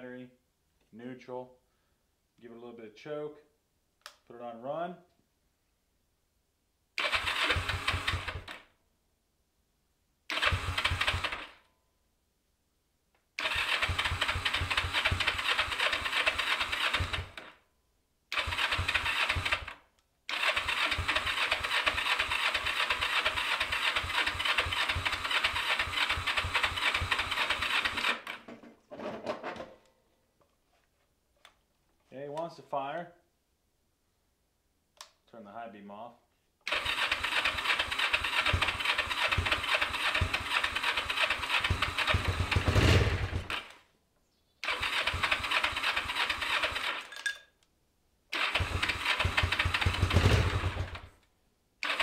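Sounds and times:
motorcycle engine cranking: 7.0 - 8.6, 10.3 - 11.6, 13.4 - 17.5, 18.4 - 19.7, 20.3 - 28.5, 36.7 - 43.8, 44.6 - 47.4, 48.4 - 51.2.

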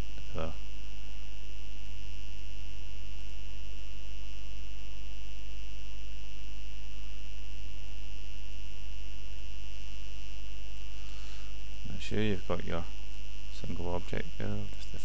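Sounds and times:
electrical mains hum: 0.0 - 15.0
high whine and hiss: 0.0 - 15.0.

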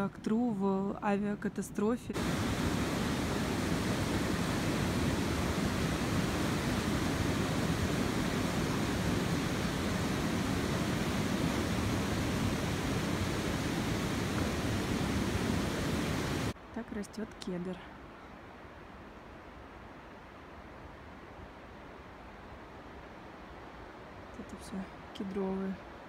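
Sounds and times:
river rushing over rocks: 2.2 - 16.6.

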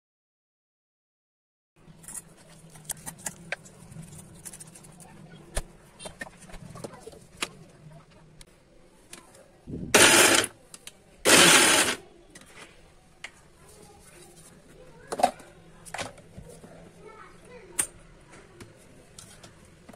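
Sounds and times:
electric mixer grinder chopping: 10.0 - 10.5, 11.3 - 12.0.

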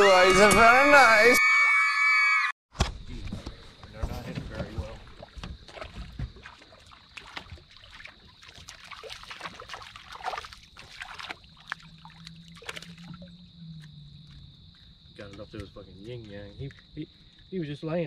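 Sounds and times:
crickets trilling: 3.0 - 18.0
fish splashing at surface: 5.0 - 13.5.

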